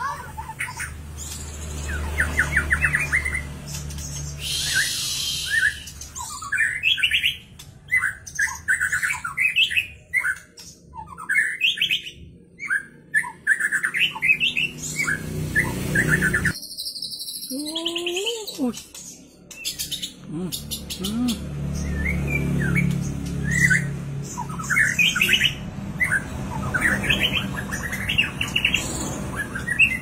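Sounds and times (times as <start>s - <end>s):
bird singing whistled phrases: 4.2s - 7.4s.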